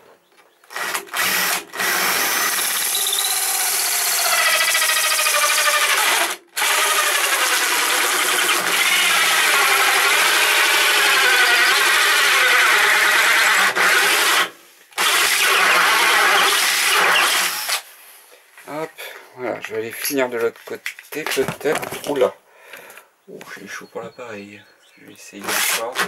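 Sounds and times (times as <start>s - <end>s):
cordless drill hole saw cutting: 0.7s - 17.9s, 25.4s - 26.0s.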